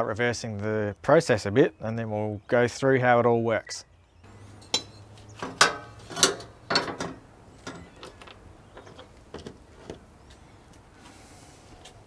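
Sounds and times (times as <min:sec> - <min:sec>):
sharp metal knocks ringing: 0:04.5 - 0:08.0
metal camping stove parts clanking: 0:04.5 - 0:10.1.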